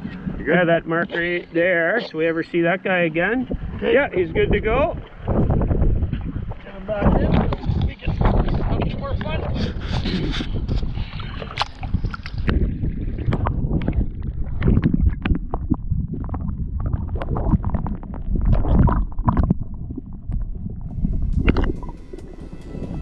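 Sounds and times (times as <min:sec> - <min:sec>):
water sloshing and gurgling: 0:03.2 - 0:23.0
low underwater rumbling: 0:03.4 - 0:23.0
short splashes and clicks: 0:11.1 - 0:20.5.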